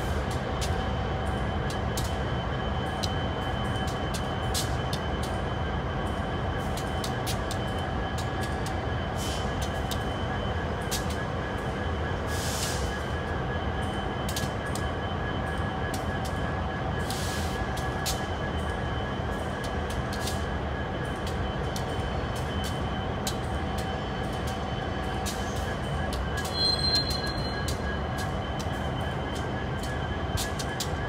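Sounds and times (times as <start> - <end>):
freight train rumble: 0.0 - 31.0
high wheel squeal: 26.5 - 27.7.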